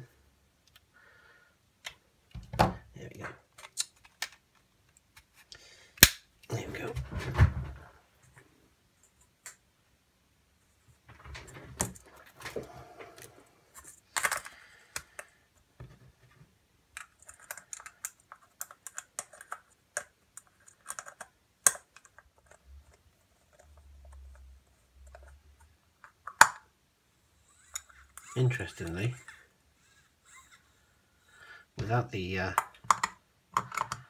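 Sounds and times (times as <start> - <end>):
plastic parts clicking and rattling: 3.4 - 6.9, 11.1 - 26.7, 32.5 - 34.0.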